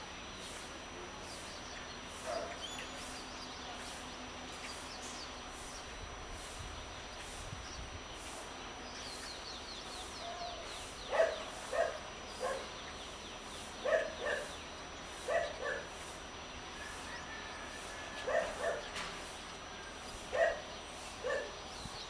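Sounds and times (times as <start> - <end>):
bird chirping: 1.2 - 5.9, 6.9 - 16.1
dog barking: 2.3 - 2.6, 11.1 - 12.7, 13.8 - 14.5, 15.3 - 15.9, 18.2 - 18.9, 20.4 - 21.6.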